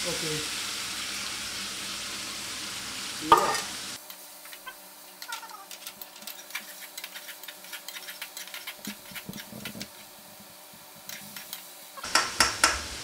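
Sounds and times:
vegetables sizzling in a pan: 0:00.0 - 0:13.0
spatula scraping the pan: 0:04.5 - 0:10.2.

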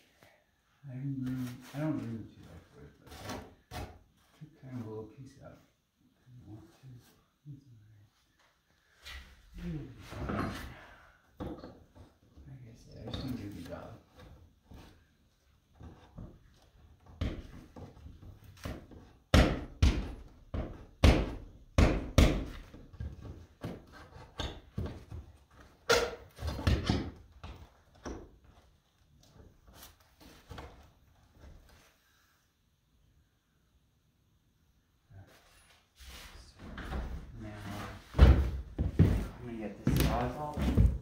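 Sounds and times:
hammer knocking on wooden boards: 0:19.3 - 0:22.8.

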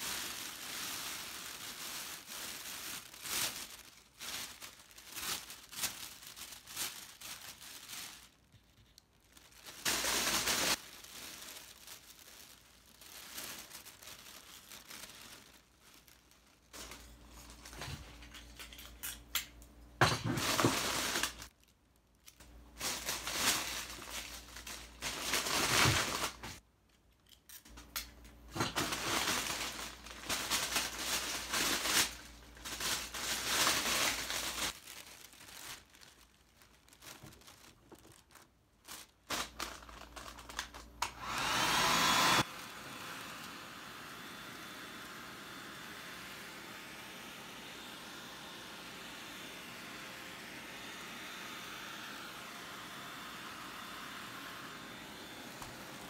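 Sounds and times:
cellophane crinkling: 0:00.0 - 0:19.3, 0:20.4 - 0:26.6, 0:27.4 - 0:41.4
hair dryer blowing: 0:41.0 - 0:56.0.

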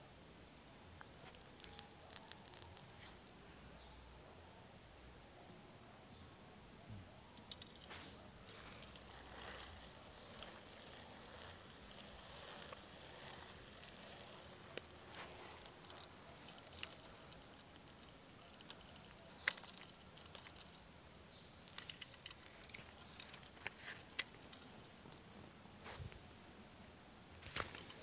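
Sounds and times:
fishing reel clicks and rustles: 0:07.4 - 0:25.3, 0:27.4 - 0:28.0.

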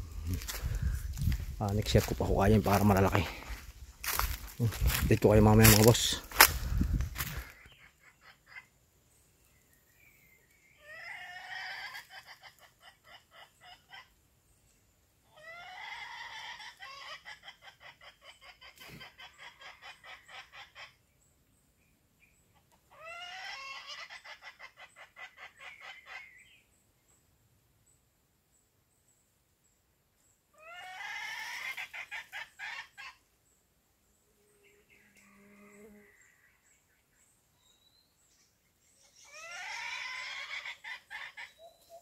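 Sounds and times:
hen call clucking: 0:22.9 - 0:26.3, 0:30.6 - 0:33.2, 0:39.3 - 0:42.0.

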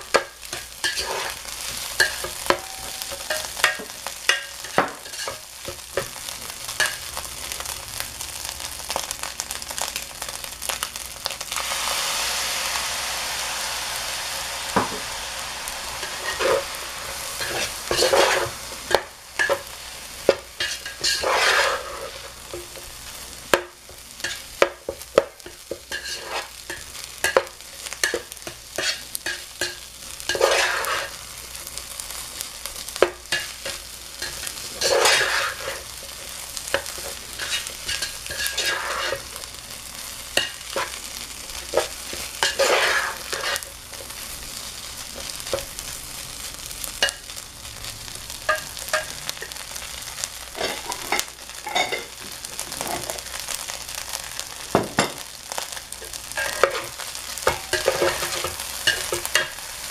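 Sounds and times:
metal spoon scraping a pan: 0:00.0 - 0:07.2, 0:15.9 - 0:22.9, 0:23.5 - 0:31.2, 0:32.7 - 0:44.3, 0:48.4 - 0:59.9
rice sizzling in a pot: 0:00.0 - 0:59.9.

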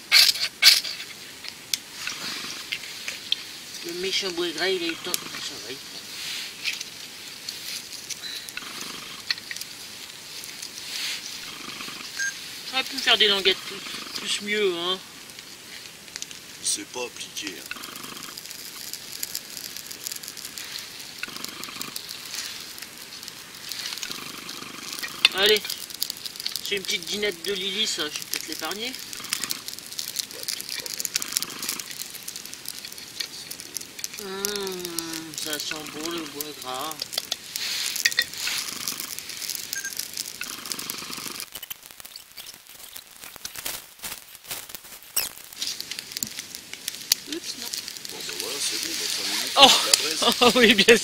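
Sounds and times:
small fire crackling and hissing: 0:00.0 - 0:51.0.

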